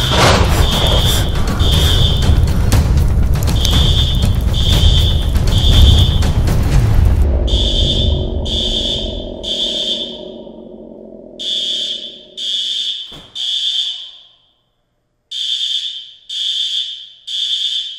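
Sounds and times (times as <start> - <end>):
smoke alarm beeping: 0.0 - 2.6, 3.5 - 6.3, 7.5 - 10.2, 11.4 - 14.7, 15.3 - 17.9
low rumble: 0.0 - 12.6.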